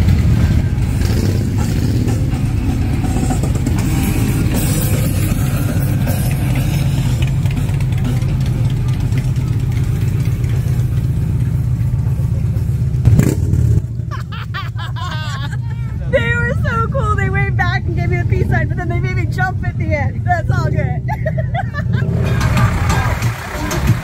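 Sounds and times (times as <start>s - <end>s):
motorcycle engines at low revs: 0.0s - 14.4s.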